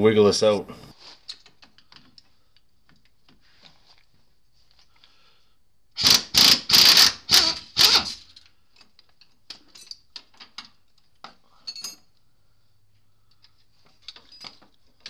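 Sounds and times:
air impact wrench hammering: 6.0s - 8.2s.

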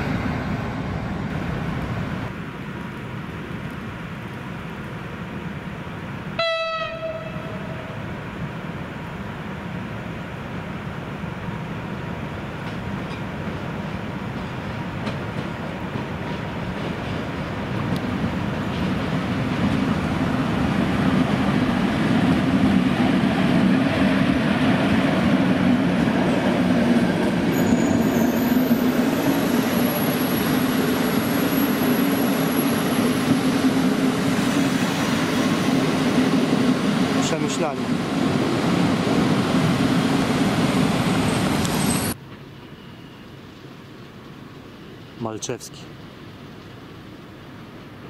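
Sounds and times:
train wheels rumbling on rails: 10.6s - 42.8s.

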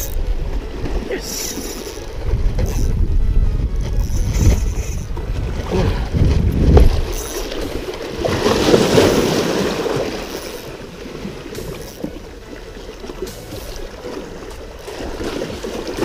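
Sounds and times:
water sloshing and lapping: 0.0s - 16.0s
wind rumble on microphone: 1.9s - 10.1s.

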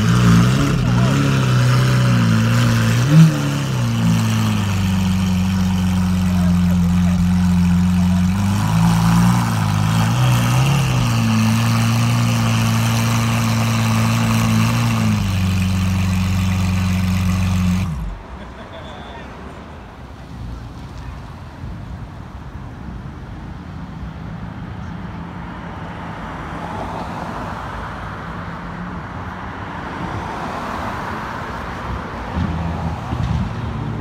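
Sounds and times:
car engine idling: 0.0s - 18.6s.

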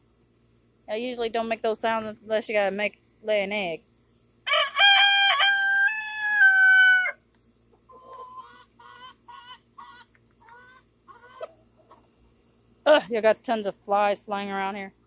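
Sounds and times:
rooster crowing: 4.5s - 7.2s
chicken clucking: 7.7s - 12.2s.

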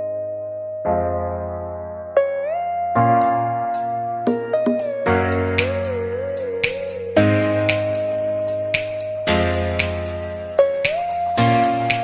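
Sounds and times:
background music with light percussion: 3.2s - 12.0s.

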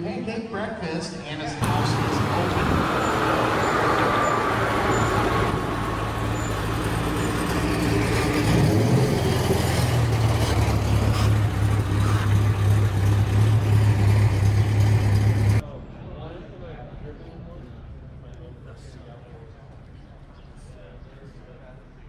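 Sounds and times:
car engine driving past: 1.6s - 15.6s.

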